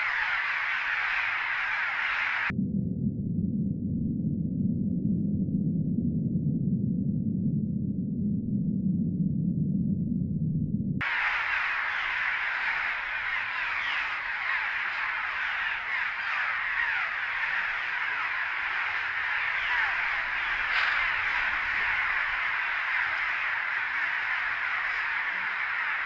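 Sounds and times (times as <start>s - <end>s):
swallows calling in chorus: 0.0s - 2.5s, 11.0s - 26.0s.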